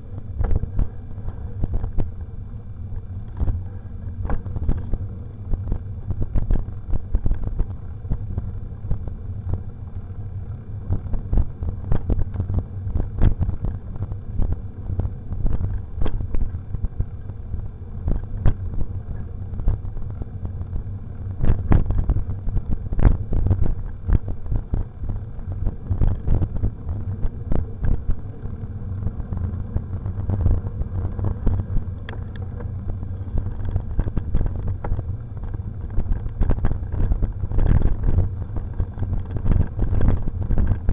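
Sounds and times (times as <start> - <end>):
wind and tyres rumbling: 0.0 - 40.9.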